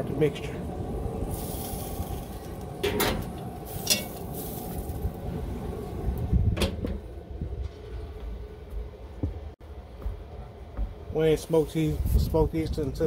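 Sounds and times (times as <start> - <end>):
grill lid thumping shut: 2.8 - 3.3, 6.5 - 7.0
metal pot clattering: 3.8 - 4.2.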